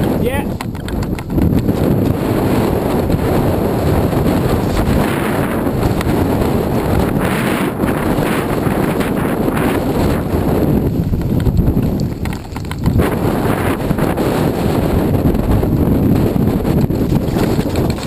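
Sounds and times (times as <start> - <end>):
wind buffeting microphone: 0.0 - 18.0
bike tyres crunching on gravel: 7.8 - 18.0.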